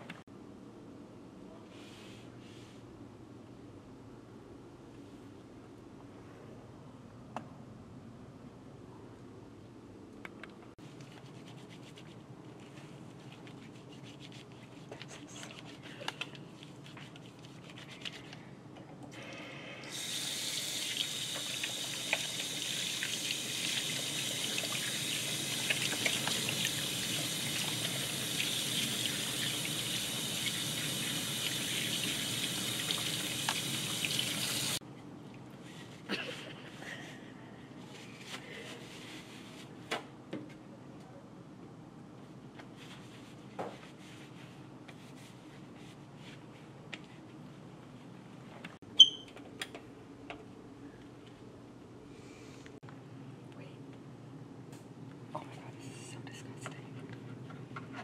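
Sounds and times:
faucet water into steel sink: 19.8 - 34.8.

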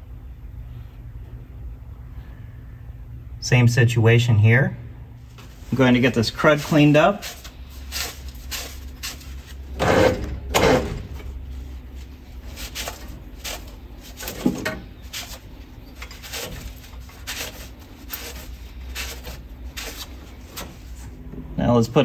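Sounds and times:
low steady hum: 0.0 - 22.0
towel rubbing on metal: 5.3 - 21.2.

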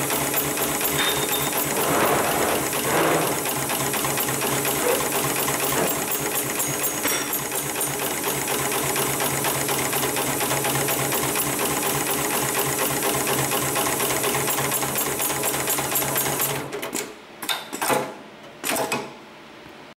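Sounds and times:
sharp mechanical noises: 0.0 - 8.4
sewing machine stitching: 0.0 - 17.0.

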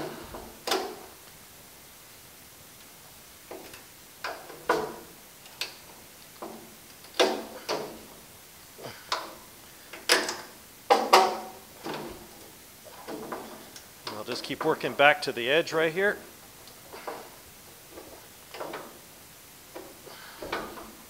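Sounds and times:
wood knocking on metal louvers: 10.0 - 15.0.

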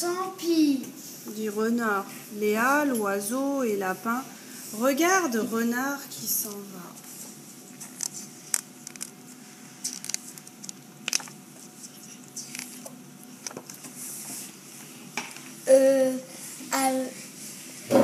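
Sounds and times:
child's voice: 0.0 - 1.0, 15.7 - 17.3
faint steady hum: 0.0 - 18.0.

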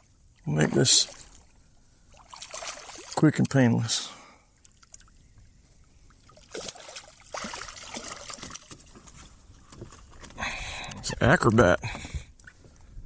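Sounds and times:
water trickling and splashing: 0.0 - 10.3.

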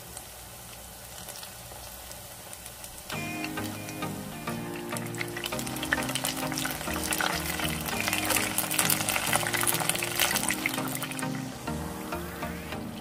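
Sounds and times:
food deep-frying in oil: 0.0 - 11.7
background music: 3.1 - 13.0.

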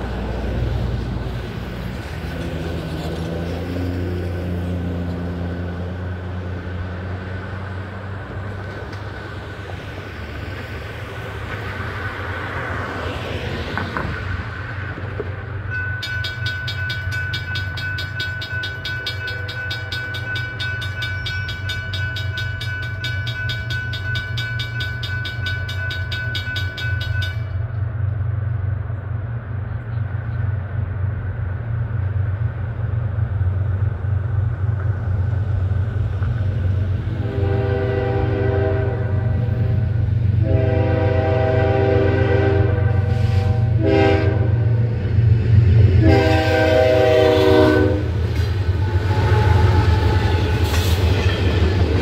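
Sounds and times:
cars passing on road: 0.0 - 52.0
mechanical crossing bell ringing: 15.7 - 27.6.

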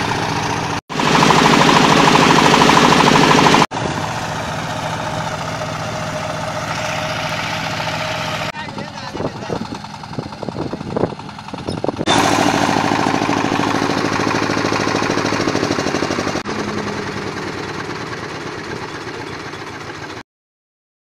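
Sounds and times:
agricultural machinery clattering: 0.0 - 20.2.

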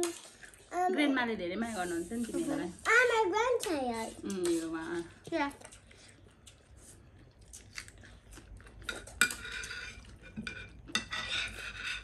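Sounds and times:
small eating clicks: 4.4 - 9.2
spoon clinking and scraping on plate: 8.9 - 12.0.

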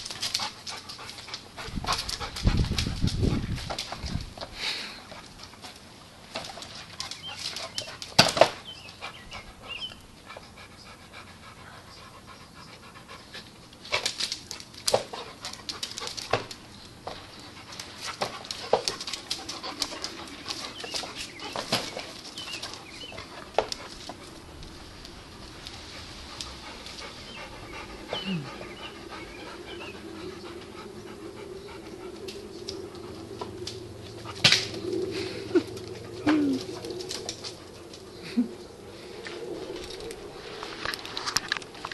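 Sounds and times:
paws scrabbling: 0.0 - 4.5, 13.8 - 29.8, 35.6 - 38.1
dogs panting: 0.0 - 40.3.

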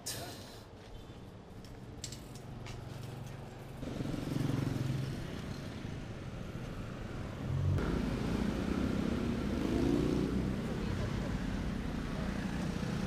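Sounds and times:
vehicle engines running: 2.7 - 13.0.

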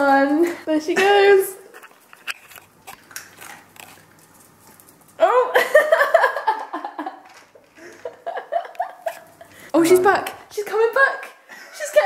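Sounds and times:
dog crunching dry food: 1.7 - 5.2
person laughing: 5.5 - 9.6.

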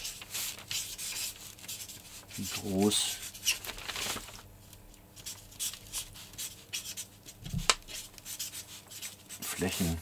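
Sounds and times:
marker scratching on paper: 0.0 - 3.6, 5.2 - 10.0.

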